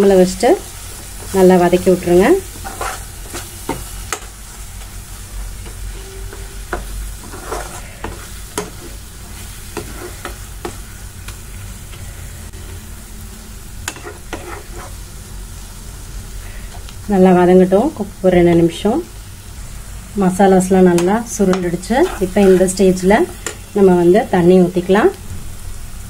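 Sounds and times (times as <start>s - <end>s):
soft sizzle: 0.0s - 26.0s
spoon scraping a pan: 1.2s - 4.3s, 5.6s - 12.7s, 13.8s - 15.1s, 20.8s - 23.8s.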